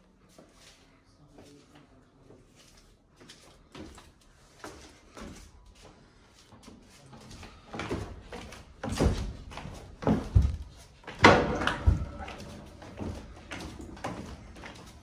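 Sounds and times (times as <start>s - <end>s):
footsteps on wooden stairs: 3.2s - 15.0s.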